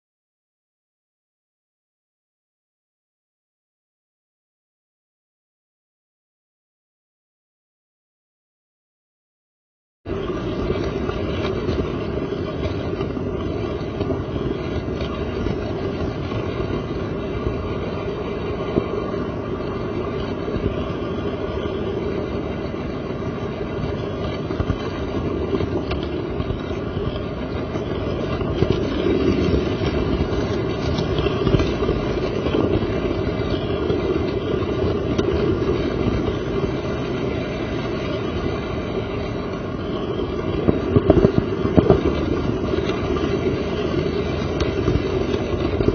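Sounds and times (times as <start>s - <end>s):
locomotive motor hum: 10.1s - 45.9s
model train rolling rumble: 10.1s - 45.9s
wheels clicking over rail joints: 10.1s - 45.9s.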